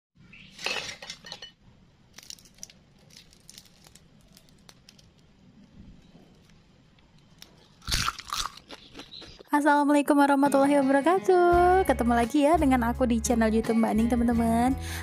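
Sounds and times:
crackles of fried prawns pulled apart: 2.1 - 5.4.

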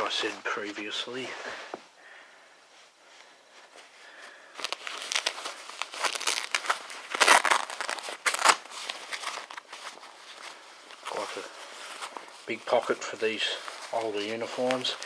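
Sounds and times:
fabric rustling and crumpling: 2.7 - 15.0.

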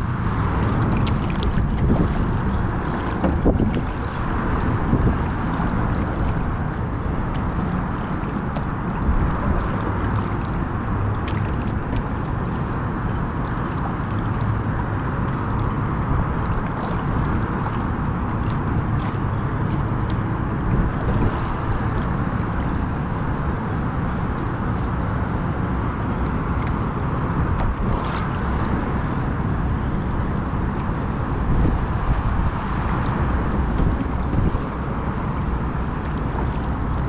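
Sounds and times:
small splashes: 0.0 - 37.0
water sloshing against kayak hull: 0.0 - 37.0.

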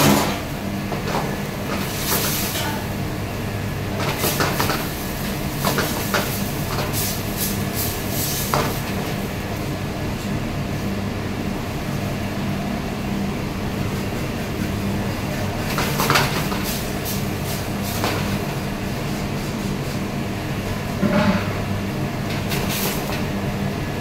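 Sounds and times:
low rumble of burners and extraction: 0.0 - 24.0
pan scraping and clanking on grate: 21.0 - 21.6.

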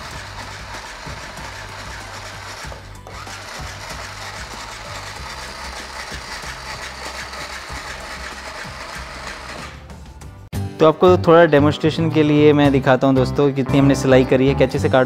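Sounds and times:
toy sewing machine clattering: 0.0 - 9.8.

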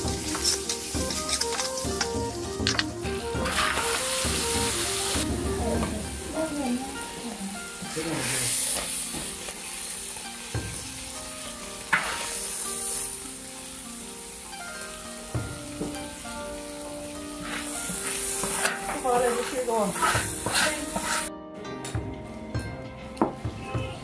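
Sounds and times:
meat sizzling in hot oil: 0.0 - 21.3
soft background music: 0.0 - 24.0
metal ladle knocking on pan: 11.9 - 12.2, 15.3 - 16.1.

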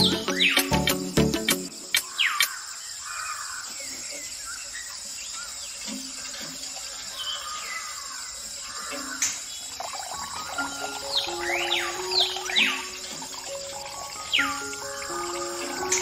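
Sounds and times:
steady high hiss: 0.0 - 3.2, 8.3 - 16.0
small birds chirping: 0.0 - 16.0.

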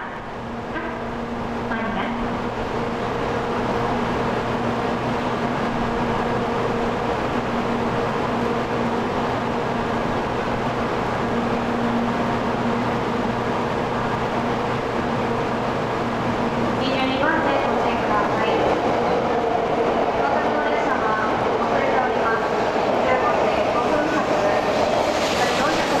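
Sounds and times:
trains rumbling through station: 0.0 - 26.0.

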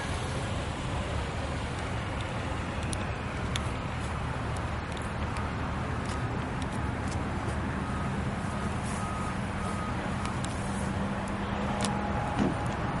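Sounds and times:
low engine rumble: 0.0 - 13.0
reversing alarm beeps: 7.7 - 10.8.

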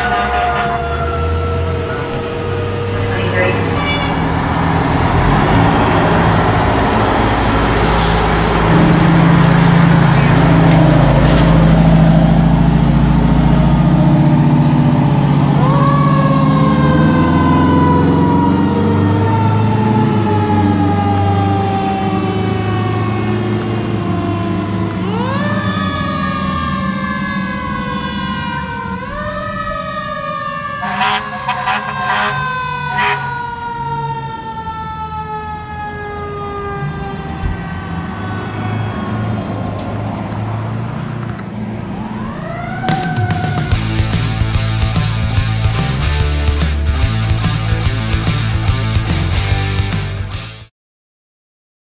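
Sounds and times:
short horn blasts: 0.0 - 4.3, 30.8 - 33.4
siren winding up and down: 0.0 - 8.4, 14.9 - 23.4, 25.0 - 39.3, 41.9 - 44.0
fire engine droning: 0.0 - 50.5.

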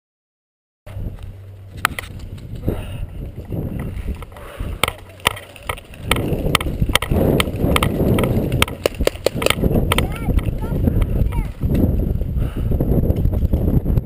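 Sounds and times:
paintball markers popping: 4.2 - 11.1.

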